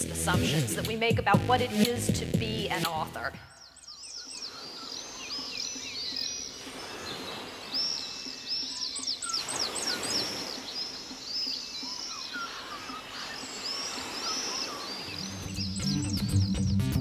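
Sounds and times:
music with a beat: 0:00.0 - 0:03.1, 0:15.6 - 0:17.0
birds chirping: 0:00.0 - 0:17.0
outdoor background noise: 0:02.8 - 0:15.5.

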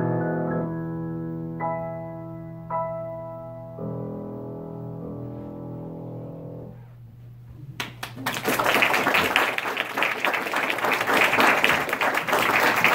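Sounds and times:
grand piano chord: 0:00.0 - 0:06.9
audience applause: 0:07.8 - 0:12.9.

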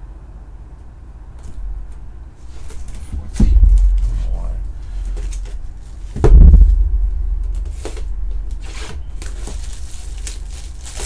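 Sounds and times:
cardboard scraping and rustling: 0:07.5 - 0:11.0.

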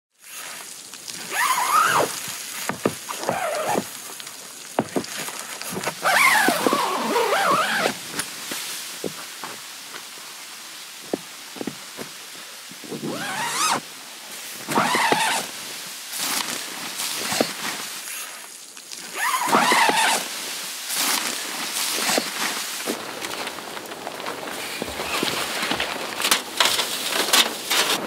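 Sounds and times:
tent zipper pulled: 0:00.2 - 0:04.0, 0:05.8 - 0:08.0, 0:12.9 - 0:13.8, 0:14.7 - 0:15.5, 0:17.2 - 0:18.4, 0:19.1 - 0:20.3, 0:20.9 - 0:23.0
tent fabric rustling: 0:00.2 - 0:09.8, 0:12.8 - 0:28.0
footsteps in snow: 0:01.2 - 0:09.6, 0:19.1 - 0:28.0.

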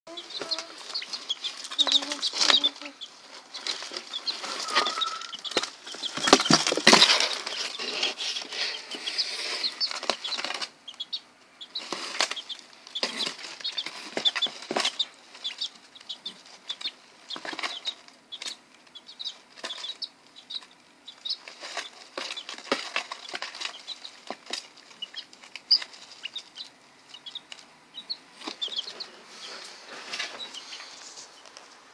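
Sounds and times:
chicks peeping: 0:00.1 - 0:31.9
scuffling in wood shavings: 0:00.2 - 0:10.1.

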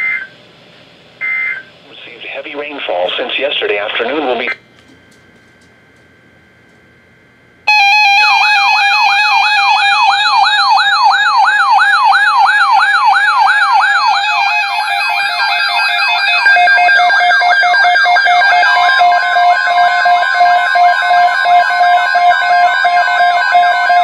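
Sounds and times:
steady alert tones: 0:07.7 - 0:10.8
warbling siren tone: 0:07.7 - 0:24.0.

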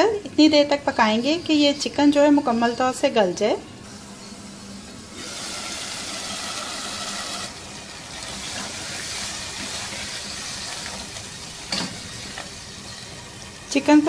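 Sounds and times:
curry sizzling and bubbling in pot: 0:03.9 - 0:14.0.

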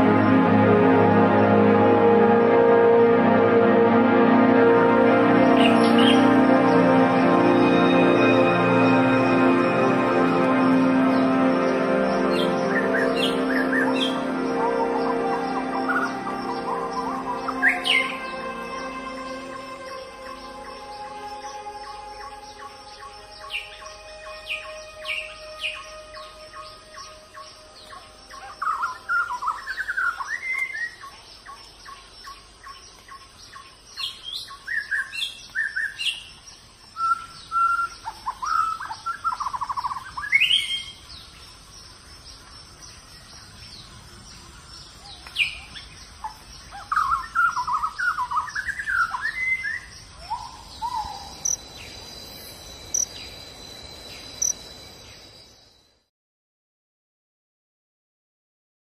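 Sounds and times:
high insect drone: 0:04.3 - 0:56.1
birds warbling: 0:05.3 - 0:36.3, 0:43.1 - 0:55.4
low insect buzz: 0:08.5 - 0:29.6, 0:50.0 - 0:56.0.

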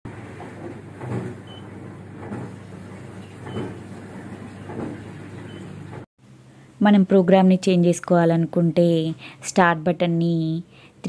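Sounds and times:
dishwasher running: 0:00.1 - 0:06.1.

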